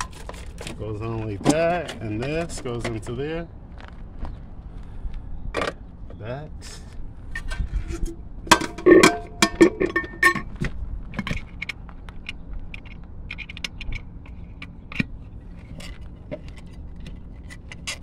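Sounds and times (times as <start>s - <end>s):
metal lid clanking and scraping: 0.0s - 2.9s, 7.3s - 10.6s, 12.7s - 18.0s.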